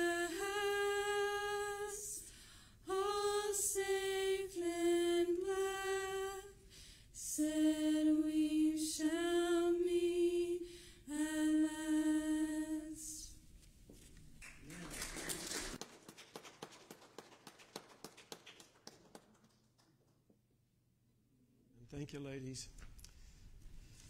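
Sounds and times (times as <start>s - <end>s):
women singing unaccompanied: 0.0s - 6.6s, 7.2s - 13.4s.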